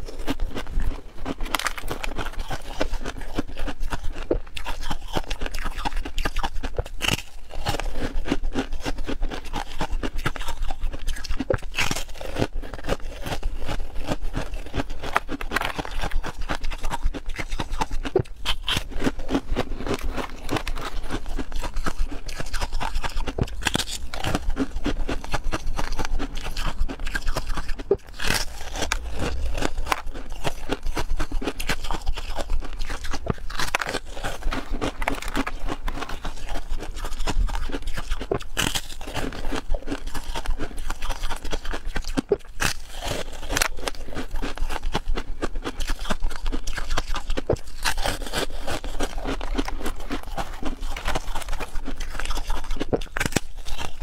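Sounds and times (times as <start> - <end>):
person crunching ice cubes: 0.0 - 54.0.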